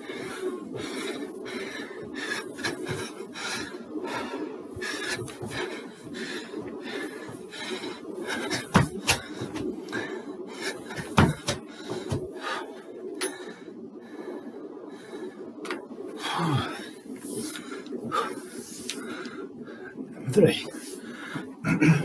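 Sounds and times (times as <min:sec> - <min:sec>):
sharp knocks: 0:11.0 - 0:12.2.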